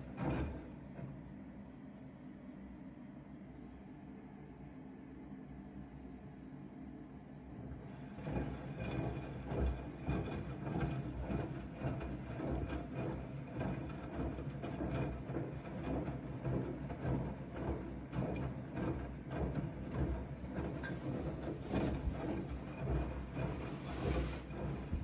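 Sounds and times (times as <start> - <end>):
washing machine motor hum: 0.0 - 1.7, 7.0 - 25.0
laundry tumbling and water sloshing: 20.4 - 25.0.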